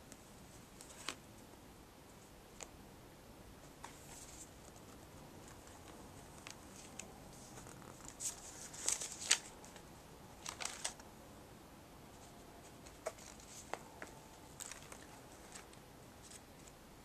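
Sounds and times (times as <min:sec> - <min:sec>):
paper pages rustling: 0:00.7 - 0:01.2, 0:03.8 - 0:11.0, 0:12.2 - 0:16.8.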